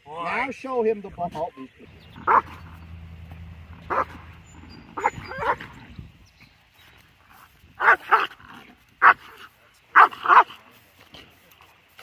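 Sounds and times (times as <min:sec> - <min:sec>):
dog barking: 0:02.2 - 0:02.8, 0:03.7 - 0:05.8, 0:07.8 - 0:08.4, 0:09.0 - 0:10.6.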